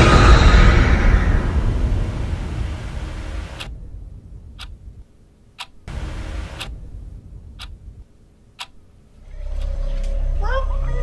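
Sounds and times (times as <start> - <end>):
low droning background: 0.0 - 11.0
low steady hum: 0.0 - 11.0
wall clock ticking: 2.8 - 3.9, 4.5 - 9.8.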